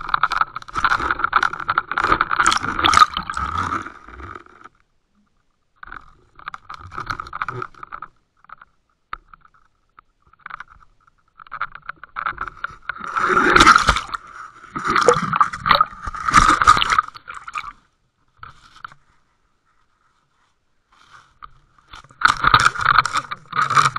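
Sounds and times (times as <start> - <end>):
scraping on camera housing: 10.4 - 17.2, 18.4 - 23.9.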